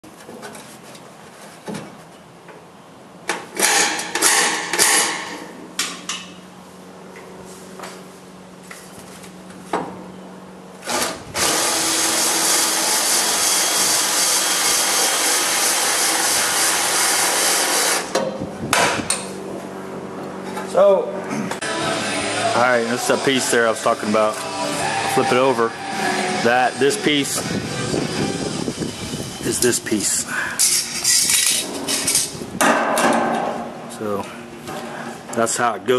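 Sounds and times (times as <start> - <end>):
cordless drill boring into steel: 10.9 - 18.0.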